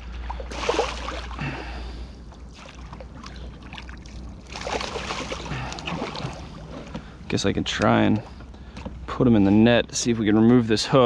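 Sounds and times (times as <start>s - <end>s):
water splashing and churning: 0.0s - 8.4s.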